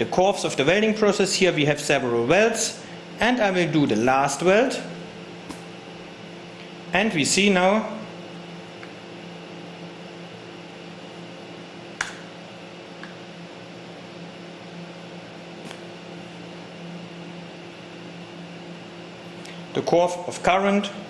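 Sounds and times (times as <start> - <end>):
fan humming: 0.0 - 21.0
sharp click: 12.0 - 12.3.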